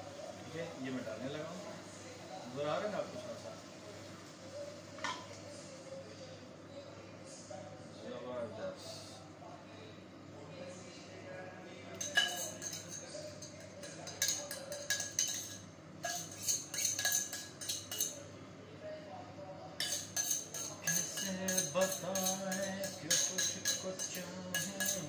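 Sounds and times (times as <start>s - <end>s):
spoon clinking in steel cup: 12.0s - 18.2s, 19.8s - 25.0s.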